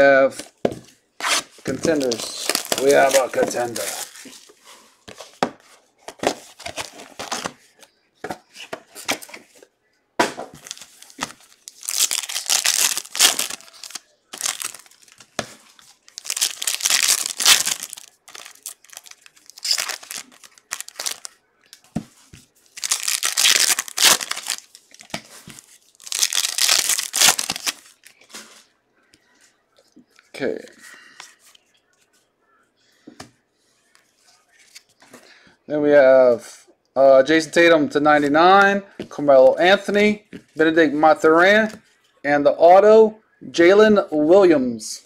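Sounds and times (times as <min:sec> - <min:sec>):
foil wrappers tearing: 0:01.9 - 0:04.1, 0:10.7 - 0:15.2, 0:16.1 - 0:21.3, 0:22.7 - 0:24.8, 0:26.0 - 0:27.9
foil rustling: 0:01.9 - 0:04.8.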